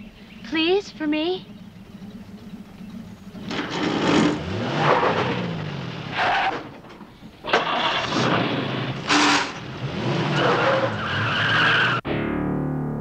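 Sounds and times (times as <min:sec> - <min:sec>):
car engine revving: 0:01.6 - 0:12.0
tyres squealing: 0:03.4 - 0:12.0.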